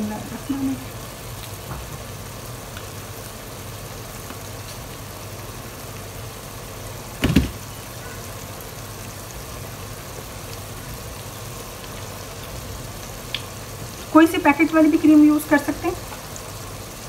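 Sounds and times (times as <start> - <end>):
short knock: 7.2 - 7.6.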